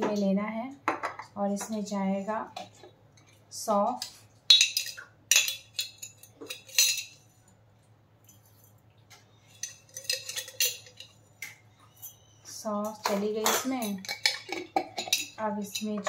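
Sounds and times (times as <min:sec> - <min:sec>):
metal spoon clinking on jars: 0:04.0 - 0:07.2, 0:09.5 - 0:12.2, 0:12.8 - 0:16.0.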